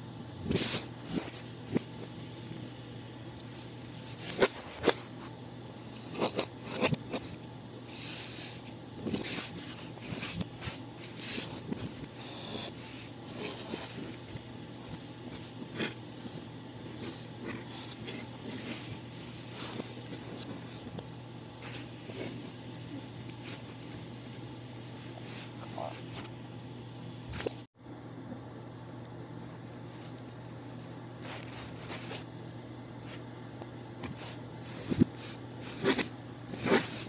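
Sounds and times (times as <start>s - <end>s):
dough rubbing and scraping: 3.4s - 26.3s, 29.8s - 32.4s, 34.0s - 37.0s.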